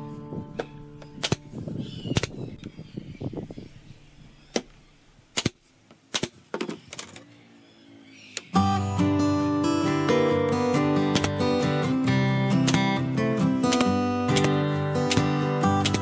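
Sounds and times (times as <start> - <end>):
nail gun shots: 1.2 - 1.5, 2.2 - 2.4, 5.3 - 6.4, 11.1 - 11.5, 12.6 - 13.0, 13.7 - 16.0.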